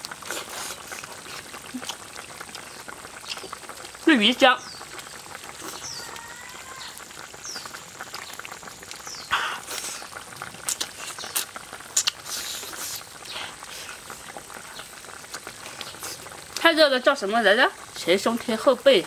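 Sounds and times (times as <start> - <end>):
wet chewing and slurping: 0.0 - 4.1, 4.7 - 16.7
sharp mouth clicks and smacks: 10.7 - 13.5.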